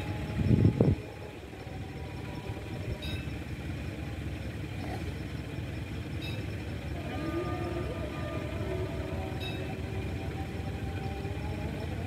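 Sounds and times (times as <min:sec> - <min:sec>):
diesel locomotive rumbling: 0:00.0 - 0:12.0.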